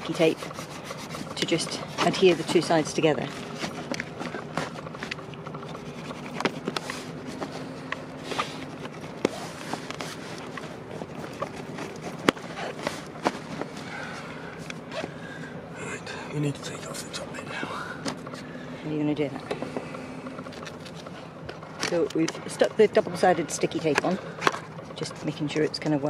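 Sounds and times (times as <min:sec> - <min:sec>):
sailcloth rustling and crinkling: 0:00.3 - 0:15.2.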